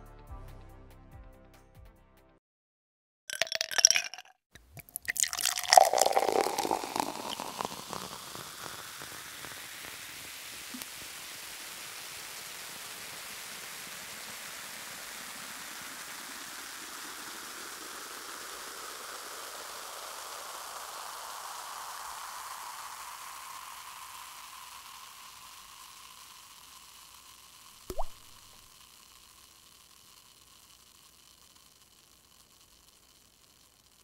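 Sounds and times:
short blip rising in pitch: 27.9 - 28.5.

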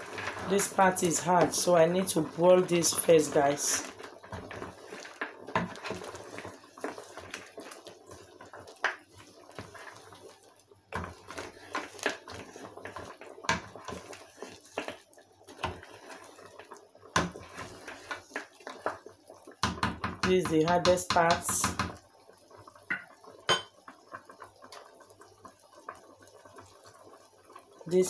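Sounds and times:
pot of water boiling: 0.0 - 28.0
wooden spoon knocking pot: 19.6 - 22.0, 22.9 - 23.8.

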